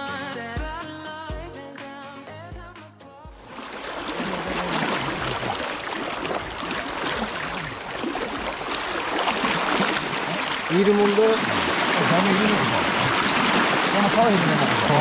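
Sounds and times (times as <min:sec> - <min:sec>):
river current rushing and splashing: 0:03.4 - 0:15.0.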